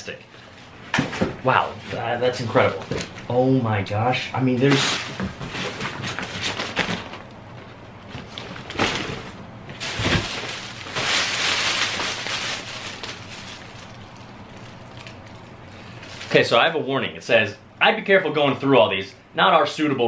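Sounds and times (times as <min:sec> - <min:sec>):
paper and cellophane rustling: 0:04.5 - 0:16.6.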